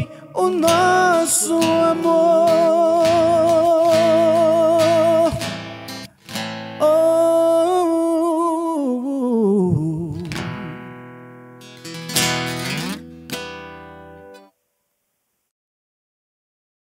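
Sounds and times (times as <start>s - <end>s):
man singing held notes: 0.0s - 5.4s, 6.8s - 10.7s
acoustic guitar: 0.0s - 14.6s.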